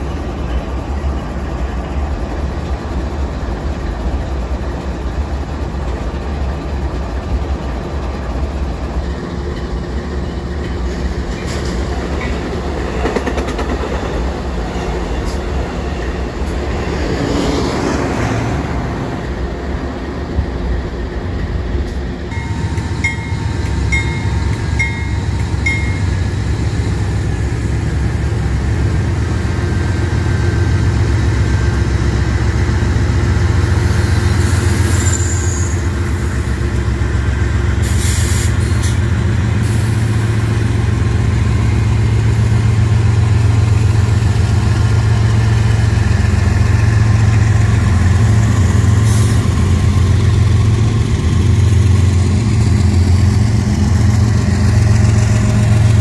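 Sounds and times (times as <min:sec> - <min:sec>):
diesel locomotive engines humming: 0:00.0 - 0:56.0
passing train rumble: 0:00.0 - 0:56.0.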